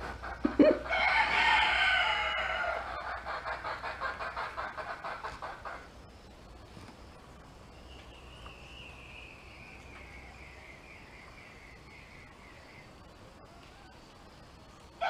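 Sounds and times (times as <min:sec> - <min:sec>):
high-pitched insect trill: 0:00.8 - 0:03.2.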